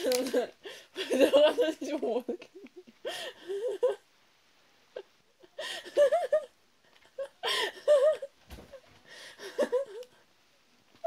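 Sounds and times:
woman giggling: 7.1s - 8.3s, 9.4s - 10.1s.

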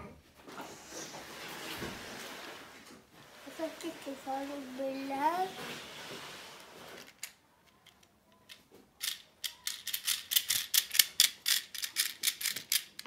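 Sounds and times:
plastic toy clicking: 7.1s - 13.0s.

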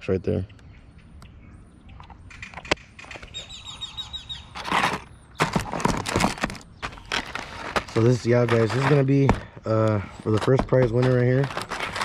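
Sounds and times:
plastic tackle boxes clattering: 4.6s - 12.0s.

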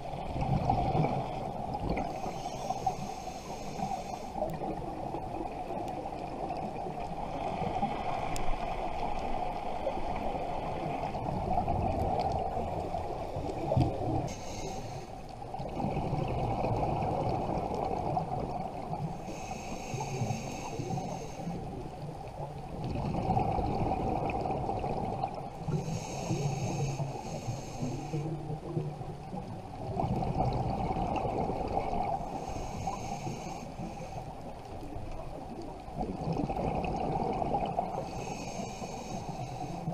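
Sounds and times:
underwater exhale bubbles: 0.0s - 14.8s, 15.4s - 34.2s, 34.8s - 39.9s
regulator hiss on inhale: 1.3s - 5.8s, 12.7s - 15.4s, 18.8s - 22.0s, 25.5s - 28.7s, 32.0s - 35.5s, 37.9s - 39.9s.

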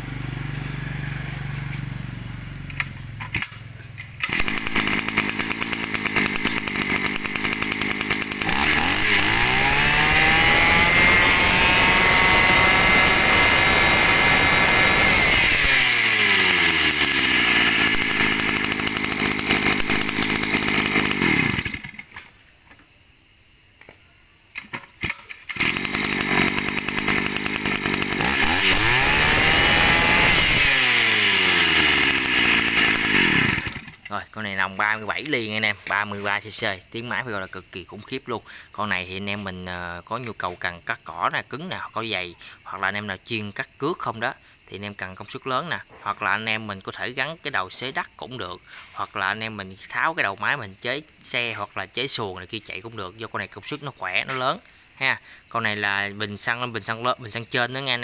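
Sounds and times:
brush-cutter engine revving: 0.0s - 2.0s, 2.6s - 22.3s, 25.0s - 34.3s.

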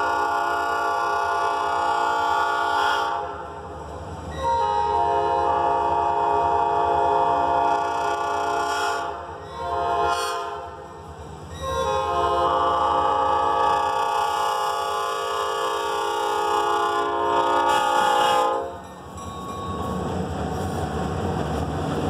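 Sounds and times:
locomotive air horn blasts: 0.0s - 3.5s, 4.4s - 10.8s, 11.7s - 18.8s.

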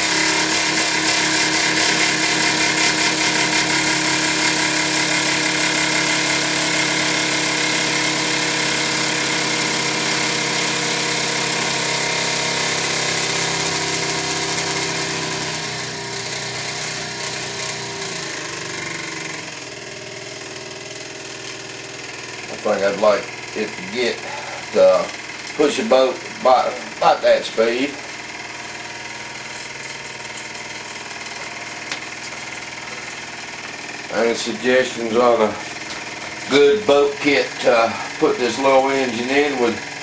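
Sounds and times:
steam engine running: 0.0s - 40.0s
steam hissing: 16.6s - 40.0s.

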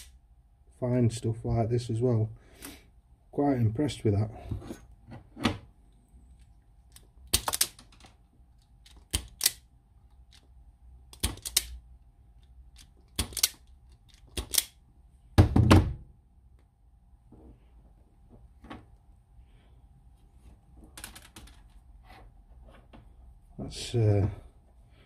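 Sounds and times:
wire strippers clicking: 11.1s - 11.8s.

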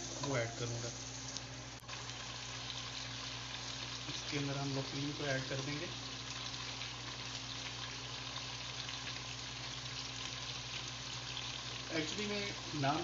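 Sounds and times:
chicken sizzling in a pot: 0.0s - 13.0s.

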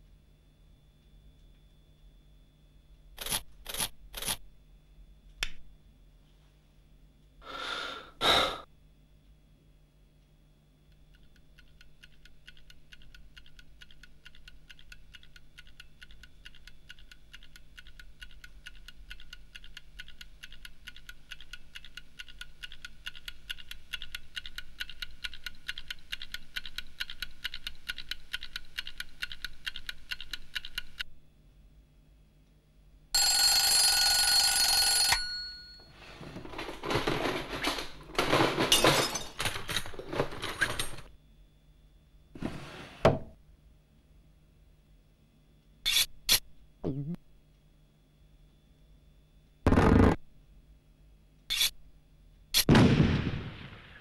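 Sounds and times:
short sharp sounds: 49.7s - 50.2s.

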